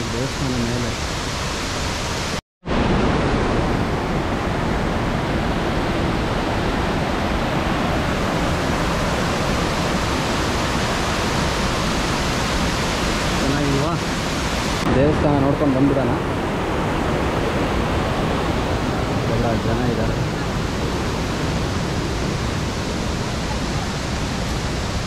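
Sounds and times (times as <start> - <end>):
waterfall roaring: 0.0 - 25.0.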